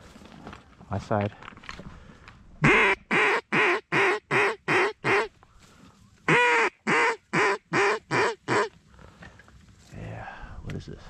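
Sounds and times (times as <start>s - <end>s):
duck quacking: 2.6s - 5.3s, 6.3s - 8.7s.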